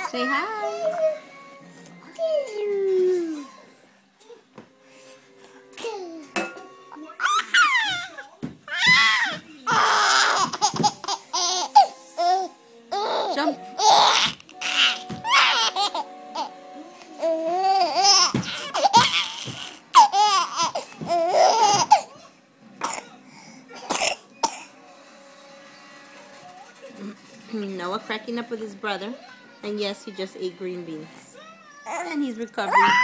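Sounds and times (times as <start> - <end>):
baby laughing: 7.1 - 16.6, 17.2 - 22.3.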